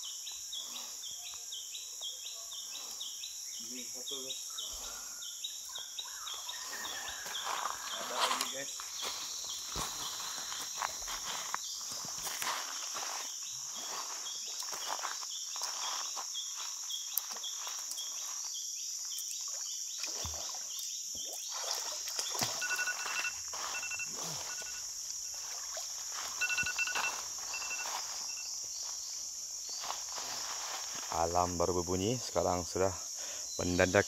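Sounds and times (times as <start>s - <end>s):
insect chorus: 0.0s - 34.0s
electronic alarm beeping: 22.4s - 25.4s, 26.1s - 28.6s.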